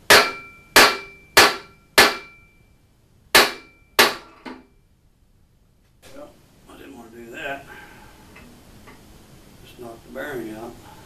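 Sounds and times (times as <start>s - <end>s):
hammer blows on metal: 0.0s - 2.6s.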